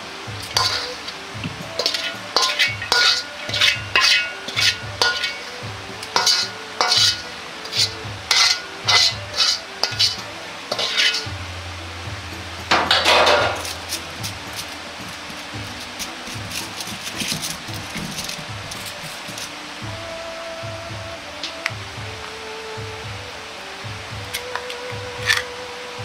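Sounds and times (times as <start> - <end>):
metal ladle scraping a wok: 0.0 - 11.4, 12.6 - 19.6, 25.2 - 25.5.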